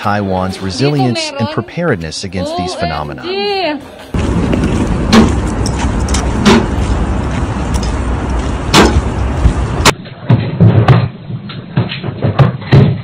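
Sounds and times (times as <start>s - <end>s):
low rumbling and rattling: 4.1s - 9.9s
low thuds: 4.2s - 9.9s
sharp knocks: 4.2s - 11.1s.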